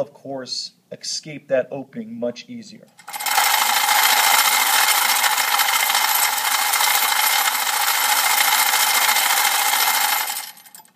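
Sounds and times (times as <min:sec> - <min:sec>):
glass beads rattling in tray: 0:03.0 - 0:10.9.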